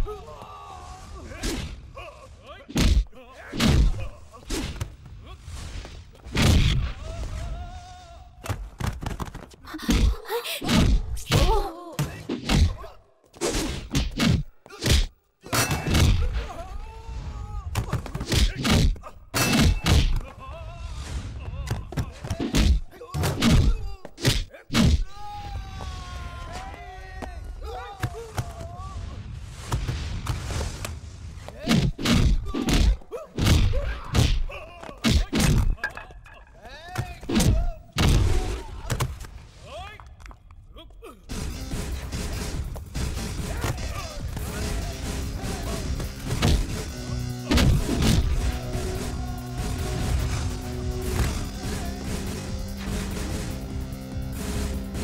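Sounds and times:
punch impacts and thuds: 2.7s - 4.0s, 13.5s - 16.3s, 22.3s - 25.0s, 31.6s - 35.8s, 46.2s - 46.9s, 47.5s - 48.5s
men grunting and groaning: 31.6s - 39.0s, 43.4s - 46.3s, 47.8s - 52.7s
heavy punch impacts: 47.5s - 48.6s.

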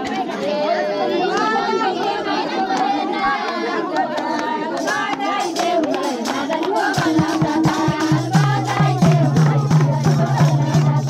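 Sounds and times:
women singing folk song: 0.0s - 11.0s
hand clapping: 3.5s - 11.0s
hand drums beating: 4.8s - 11.0s.

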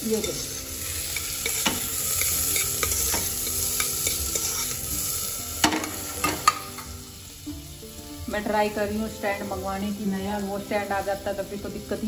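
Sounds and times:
onions sizzling in hot fat: 0.0s - 12.0s
steel ladle scraping a pot: 0.2s - 6.6s.

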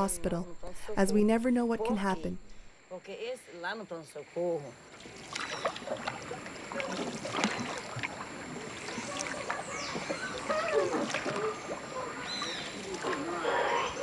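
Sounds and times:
wildlife chirps and calls: 0.0s - 14.0s
water lapping: 4.7s - 14.0s.

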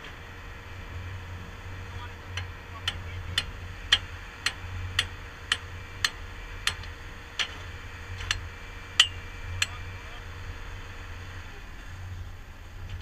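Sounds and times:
skid steer engine running: 0.0s - 13.0s
sharp metallic clicks: 2.4s - 7.6s.

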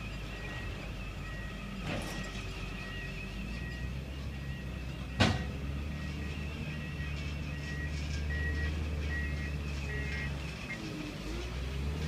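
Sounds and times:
diesel engine running: 0.0s - 12.0s
log clunking onto trailer: 5.2s - 5.6s
faint high beep: 5.9s - 10.8s.

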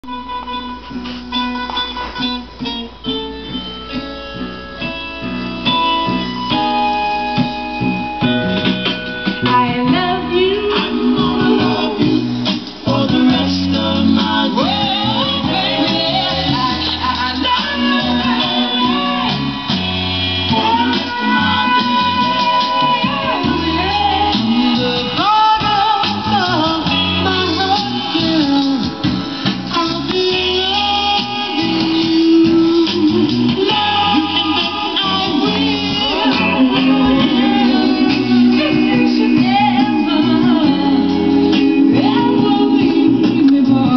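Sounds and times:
guitar: 0.0s - 43.9s
soul record playing: 0.0s - 43.9s
sustained keyboard chords: 0.0s - 43.9s
person singing: 9.4s - 43.9s.

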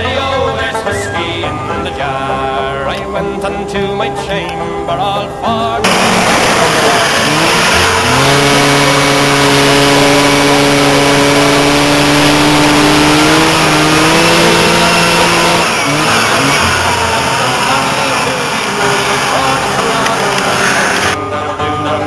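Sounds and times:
loud rushing noise: 5.8s - 21.2s
snowmobile engine: 5.8s - 21.2s.

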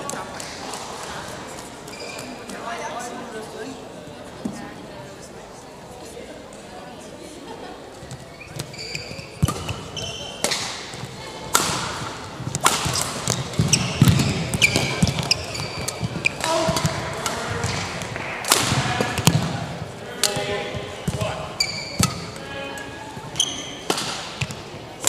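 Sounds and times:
shoes squeaking on court: 1.8s - 2.6s, 8.0s - 11.2s, 12.0s - 18.0s, 20.7s - 24.6s
rackets striking shuttlecock: 8.5s - 22.5s, 23.2s - 24.7s.

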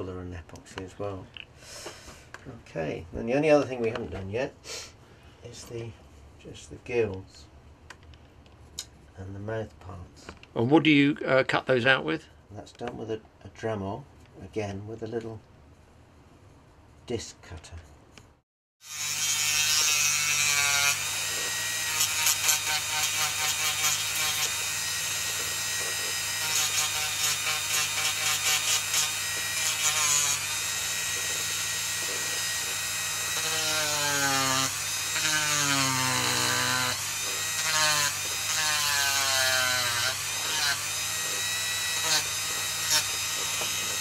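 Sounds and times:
rotary tool cutting wood: 18.8s - 44.0s.

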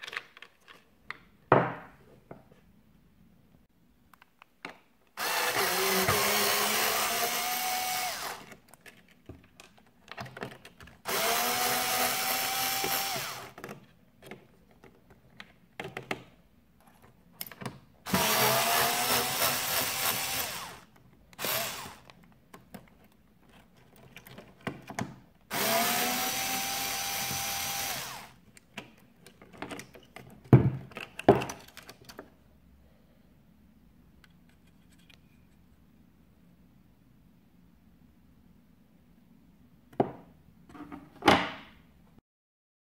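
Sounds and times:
cordless drill motor whine: 5.2s - 8.4s, 11.1s - 13.5s, 18.1s - 20.8s, 21.4s - 22.1s, 25.5s - 28.3s.

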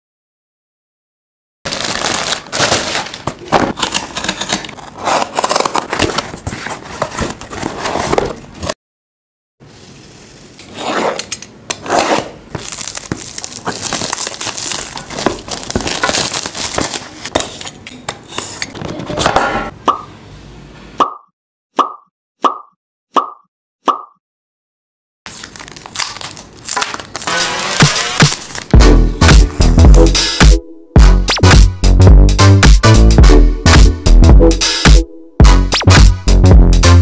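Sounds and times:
box cutter slicing shrink wrap: 1.7s - 8.4s, 10.6s - 17.4s, 25.3s - 28.8s
plastic mailer bag rustling: 1.7s - 8.7s, 12.6s - 17.4s, 25.3s - 28.8s
cardboard box handling: 3.3s - 8.7s.

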